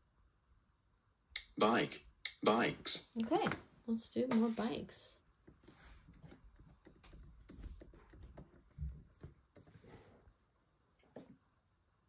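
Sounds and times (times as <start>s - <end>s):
laptop keyboard typing: 5.3s - 9.9s.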